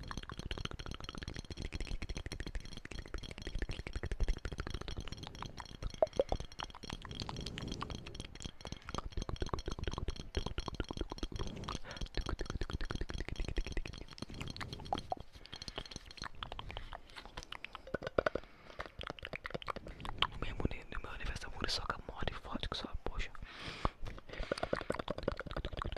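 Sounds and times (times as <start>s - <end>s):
tapping: 0.0s - 18.5s
mouth sounds: 1.2s - 25.9s.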